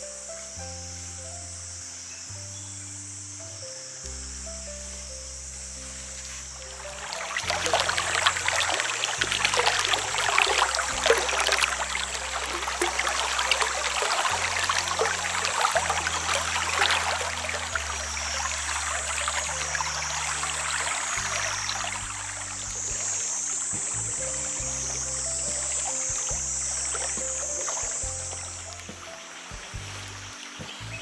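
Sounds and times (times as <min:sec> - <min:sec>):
water trickling and splashing: 0:05.8 - 0:31.0.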